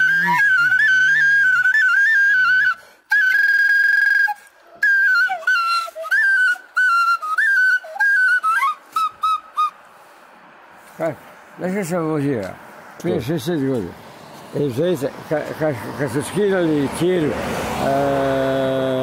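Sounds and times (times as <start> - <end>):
end-blown flute folk melody: 0.0 - 9.8.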